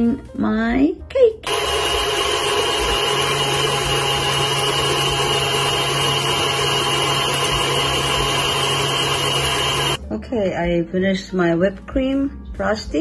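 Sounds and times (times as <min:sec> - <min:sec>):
stand mixer whirring: 0:01.4 - 0:10.0
whisk beating cream in metal bowl: 0:01.5 - 0:10.0.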